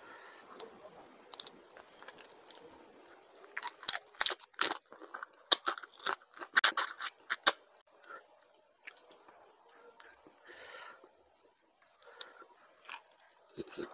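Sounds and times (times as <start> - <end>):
wet chewing and crunching: 1.3 - 7.6, 8.8 - 9.3, 11.8 - 13.9.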